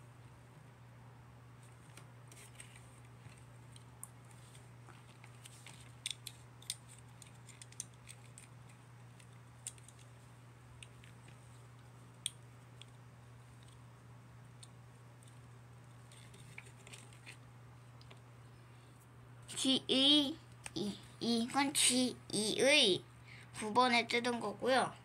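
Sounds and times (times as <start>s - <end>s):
low steady hum: 0.0s - 25.0s
plastic parts clicking and snipping: 5.4s - 10.1s.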